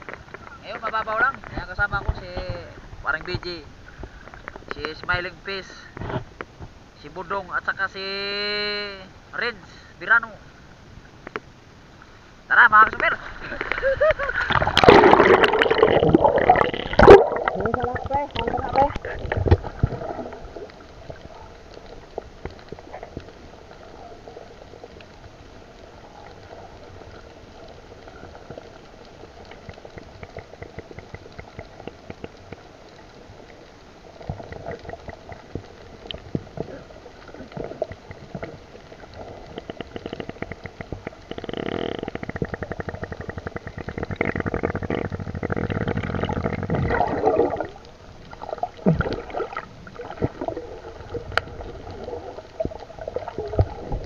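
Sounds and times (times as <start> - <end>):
underwater crackle of clicks: 0.0 - 5.2, 5.9 - 6.8, 11.1 - 11.6, 12.9 - 54.0
underwater water noise gurgling: 12.9 - 54.0.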